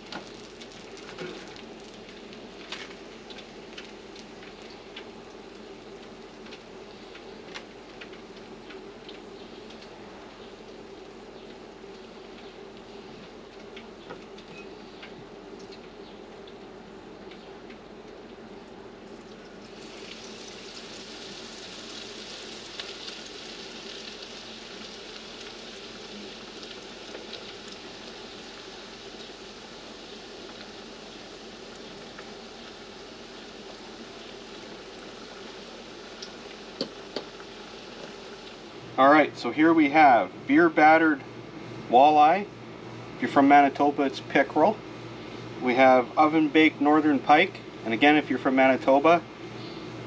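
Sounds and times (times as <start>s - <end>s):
oil sizzling in deep fryer: 0.0s - 16.7s, 18.2s - 39.0s.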